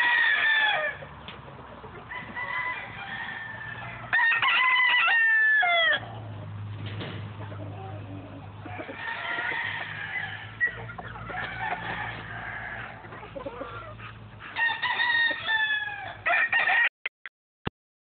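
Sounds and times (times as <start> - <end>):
roosters crowing: 0.0 - 1.2, 1.8 - 16.9
roosters clucking: 0.0 - 16.9.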